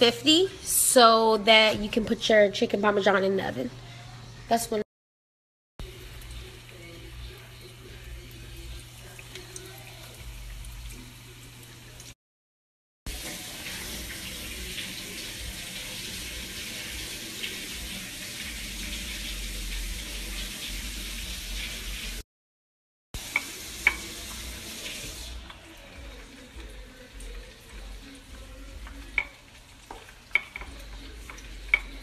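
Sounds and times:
oil sizzling in frying pan: 5.8 - 12.2, 13.1 - 22.2, 23.2 - 32.0.

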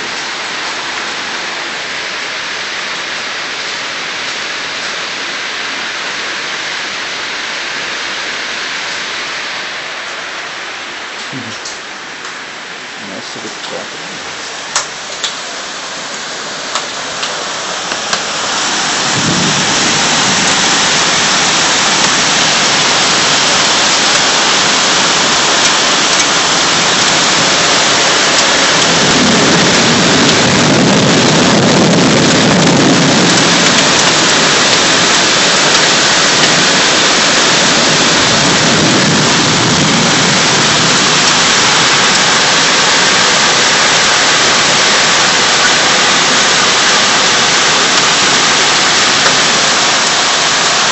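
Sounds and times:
heavy rain pouring: 0.0 - 50.9.

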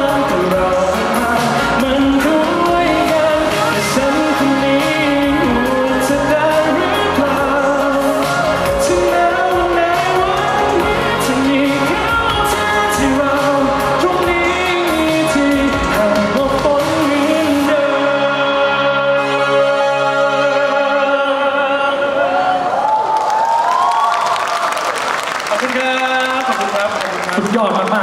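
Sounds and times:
pop backing music with drum beat: 0.0 - 21.9
man singing: 0.0 - 22.8.

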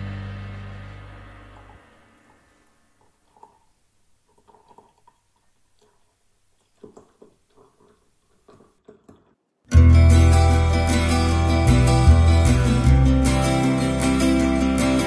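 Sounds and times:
coffee pouring into a mug: 3.2 - 8.7.

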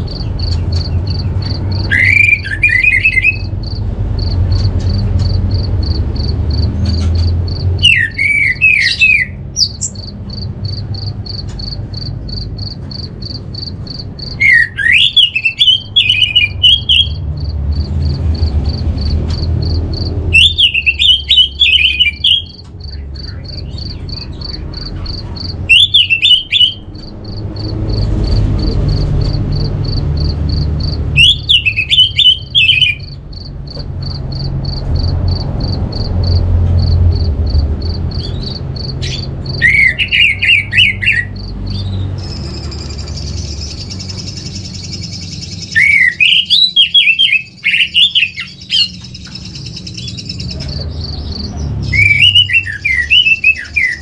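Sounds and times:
rapid high pulsed chirping: 0.0 - 54.0
thrush whistled song: 0.4 - 3.5, 7.8 - 9.8, 14.3 - 17.2, 20.3 - 24.6, 31.2 - 33.2, 38.3 - 50.5, 51.8 - 54.0.

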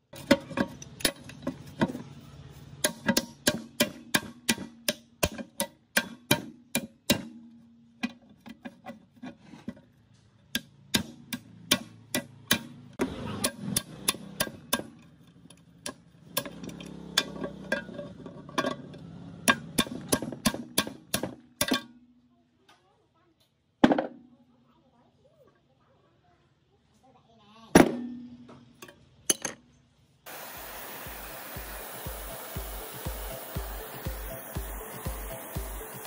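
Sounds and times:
hammer striking metal wrench: 2.8 - 7.5, 10.5 - 12.8, 13.4 - 15.1, 19.5 - 21.9.

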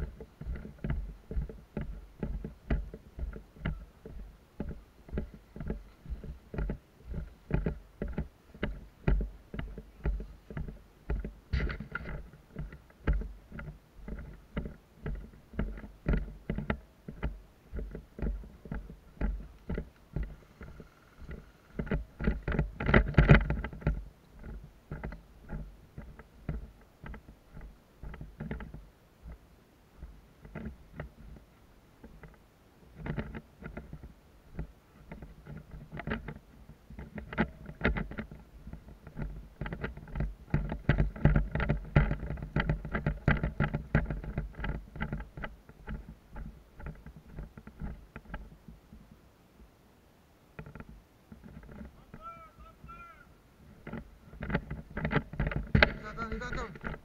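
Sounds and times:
footsteps on leafy dirt path: 0.0 - 31.6.

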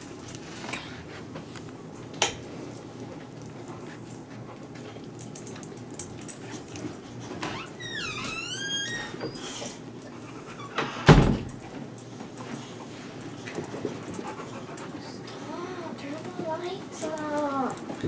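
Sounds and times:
dog whining: 7.5 - 10.8.

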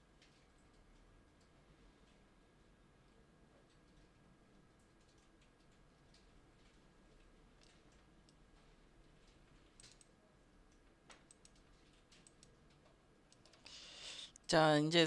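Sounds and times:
low room hum: 0.0 - 15.0
faint computer clicks: 3.0 - 13.7.

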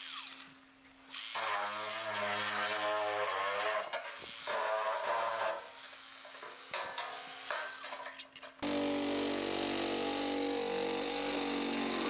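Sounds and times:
electric shears cutting metal: 0.0 - 12.0
shears motor humming: 0.0 - 12.0.

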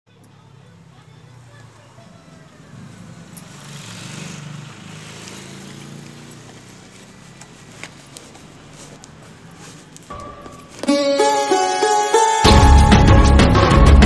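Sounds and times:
plastic packaging rustling: 5.1 - 11.1.

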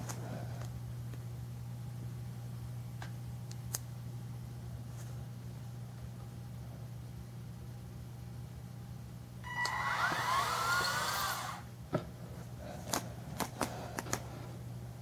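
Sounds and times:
gear motors whirring: 9.4 - 11.7.

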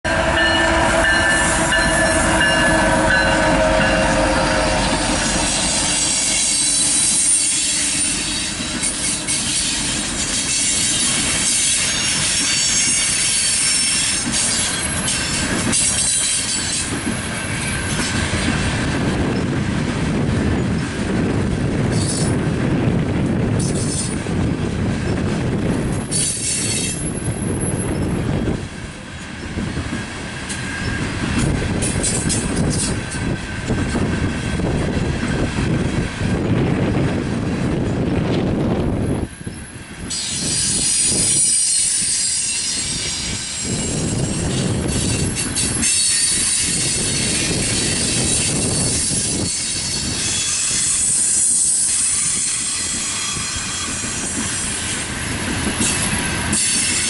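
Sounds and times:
diesel locomotive engine: 0.0 - 57.0
train wheels rumbling on rail: 0.0 - 57.0
wheel squeal: 40.1 - 54.9.

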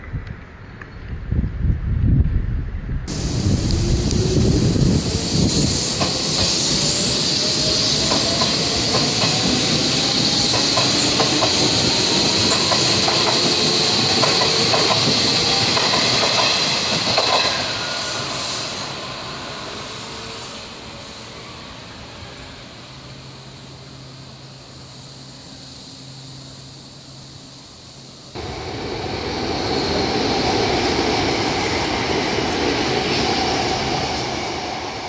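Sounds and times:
train motor whine: 3.1 - 22.4
train hiss: 3.1 - 35.0.

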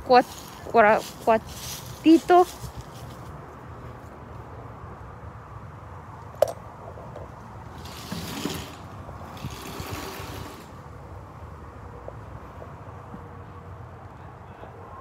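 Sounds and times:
rough scuffing noises: 0.1 - 4.2.

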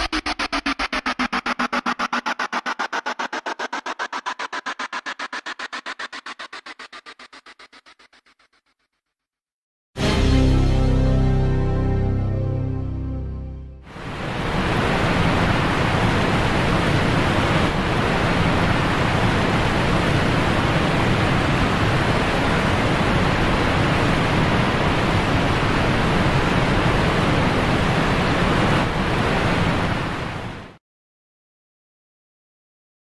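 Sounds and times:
steady rushing noise: 0.0 - 8.6, 13.9 - 30.7.

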